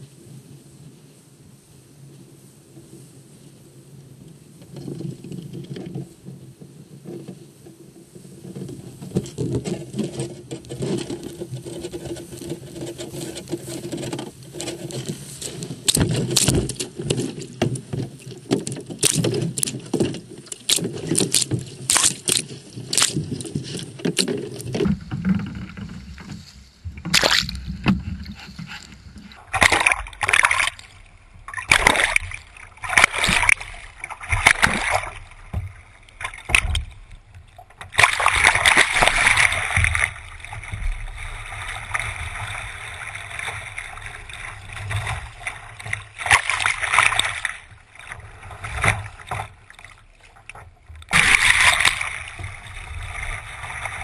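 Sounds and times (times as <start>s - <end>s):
kayak hull scraping on pebbles: 4.1s - 54.0s
water sloshing against hull: 4.3s - 54.0s
paddle splashes: 4.5s - 54.0s.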